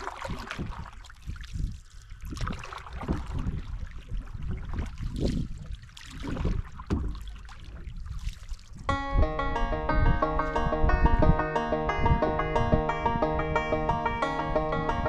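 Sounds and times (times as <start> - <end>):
water splashing and trickling: 0.0 - 8.9
paddle stroking through water: 2.4 - 8.9.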